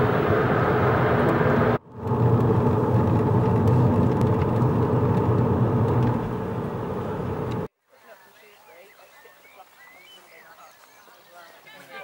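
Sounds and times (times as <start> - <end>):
car engine and tyre road noise: 0.0 - 7.7.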